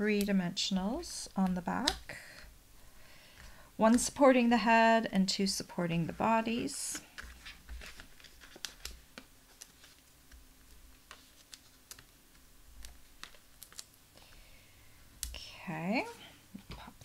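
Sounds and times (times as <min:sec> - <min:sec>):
hands handling cardstock: 0:06.0 - 0:13.9.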